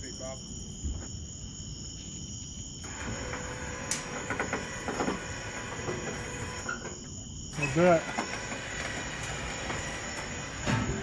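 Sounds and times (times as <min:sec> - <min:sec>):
crickets chirring: 0:00.0 - 0:11.0
items knocking and clattering: 0:10.6 - 0:11.0.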